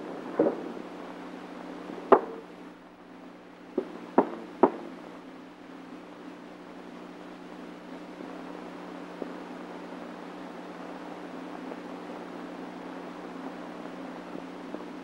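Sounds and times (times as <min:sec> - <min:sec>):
film soundtrack hum and hiss: 0:00.0 - 0:15.0
sharp knocks: 0:02.1 - 0:02.5, 0:03.8 - 0:04.9.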